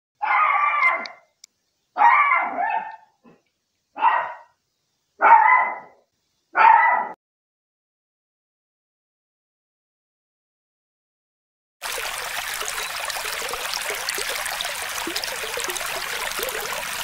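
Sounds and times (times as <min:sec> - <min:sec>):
dog barking: 0:00.2 - 0:01.2, 0:02.0 - 0:03.2, 0:04.0 - 0:04.6, 0:05.2 - 0:07.2.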